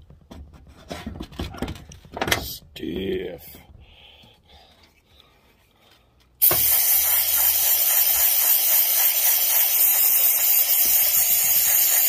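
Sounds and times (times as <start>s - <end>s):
loud steady hiss: 6.4s - 12.0s.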